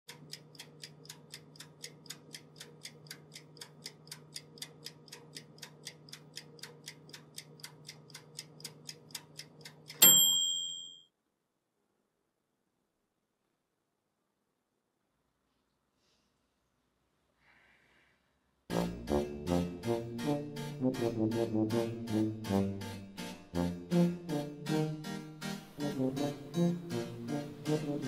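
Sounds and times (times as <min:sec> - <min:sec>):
clock ticking fast: 0:00.1 - 0:10.4, 0:18.7 - 0:28.0
bell ding: 0:10.0 - 0:11.1.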